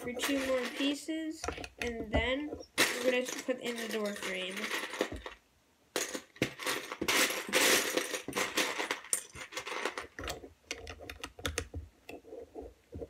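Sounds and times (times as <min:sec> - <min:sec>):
plastic bricks clattering: 0:00.0 - 0:05.4, 0:06.0 - 0:11.8.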